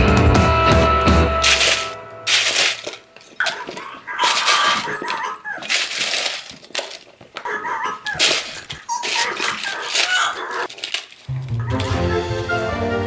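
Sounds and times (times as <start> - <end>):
music: 0.0 - 2.6, 11.3 - 13.0
potato chips crunching: 1.3 - 12.0
squeaky munching noises: 3.4 - 11.8.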